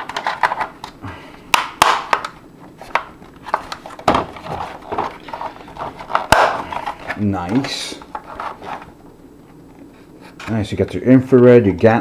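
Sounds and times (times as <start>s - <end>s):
plastic scraping: 2.2s - 9.0s.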